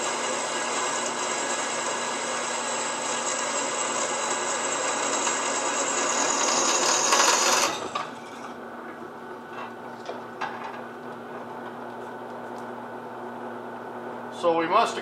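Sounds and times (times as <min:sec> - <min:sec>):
drill bit grinding through steel: 0:00.0 - 0:08.0
drill press motor running: 0:00.0 - 0:08.6.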